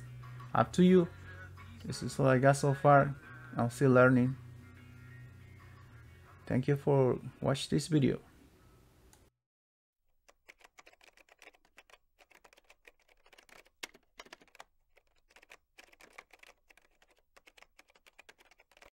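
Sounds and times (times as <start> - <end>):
rapid faint clicking: 10.3 - 18.9.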